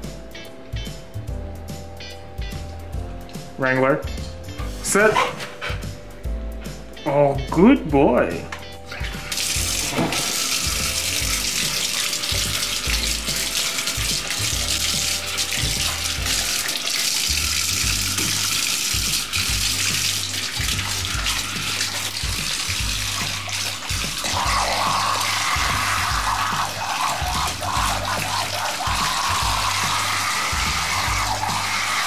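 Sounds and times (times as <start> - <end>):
faucet stream into bathtub: 8.9 - 32.0
water splashing: 9.0 - 32.0.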